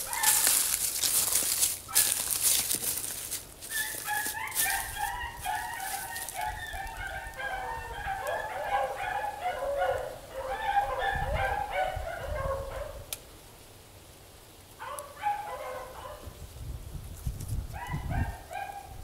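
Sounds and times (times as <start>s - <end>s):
beagles baying: 0.0s - 13.1s, 14.8s - 16.3s.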